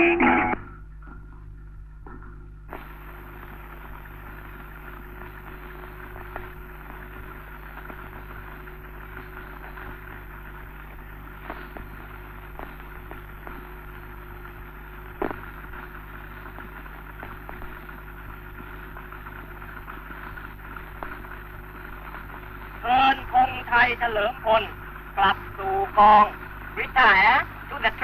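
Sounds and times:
old film soundtrack hum and hiss: 0.0 - 28.0
clicks and pops: 14.4 - 22.8.

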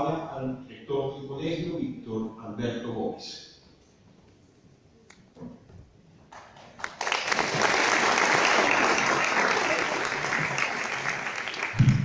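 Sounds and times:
audience applauding: 6.3 - 12.0.

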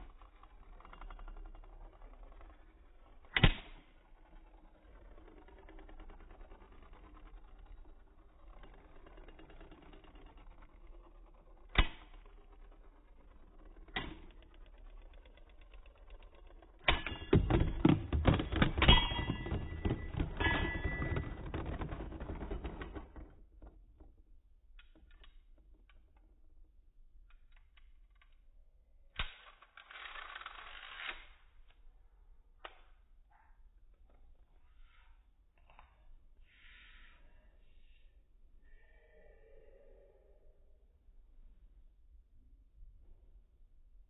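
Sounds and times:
spinning tops clattering: 0.0 - 23.3
pieces rattling: 16.5 - 23.4.

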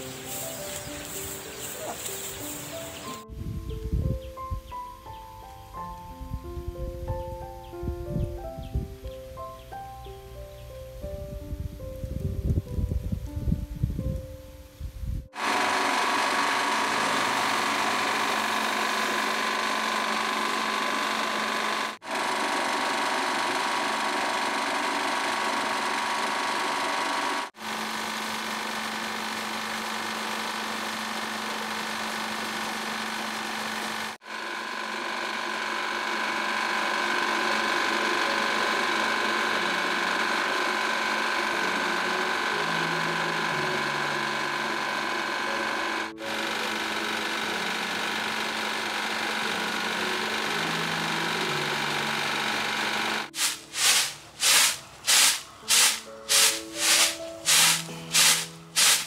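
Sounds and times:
rice milling machine running: 0.0 - 3.2, 15.3 - 59.0
grains pouring down metal chute: 52.4 - 59.0.

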